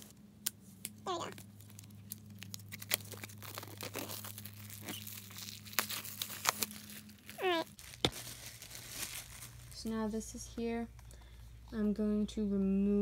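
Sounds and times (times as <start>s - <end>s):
plastic shrink wrap tearing: 0.8s - 9.9s.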